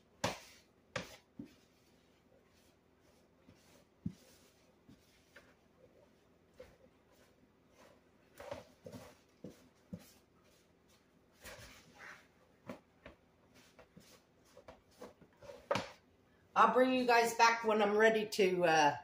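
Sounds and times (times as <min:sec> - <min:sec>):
spoon stirring dough in bowl: 0:00.0 - 0:16.1.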